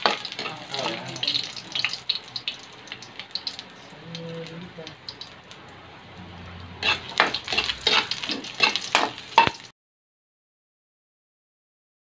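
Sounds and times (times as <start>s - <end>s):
metal spoon scraping a pan: 0.0s - 2.0s, 6.7s - 9.7s
ginger sizzling in hot oil: 0.0s - 9.7s.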